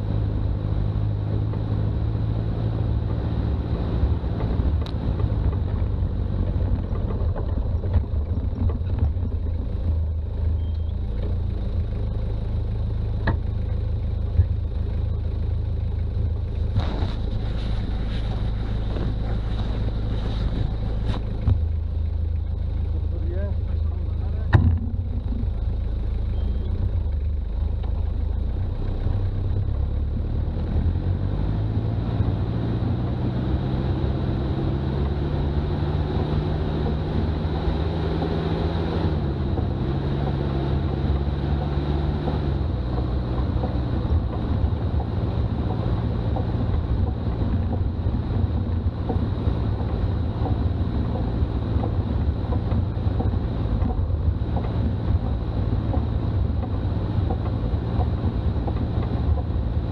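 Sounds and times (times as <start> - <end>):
diesel engine running: 0.0 - 59.9
road noise: 0.0 - 59.9.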